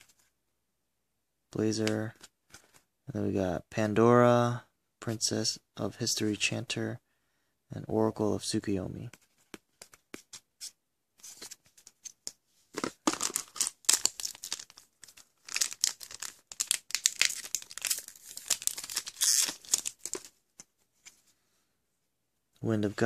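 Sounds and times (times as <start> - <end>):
light clicks of cards handled: 9.1 - 10.4
card pack wrapper crinkling and tearing: 12.8 - 20.4.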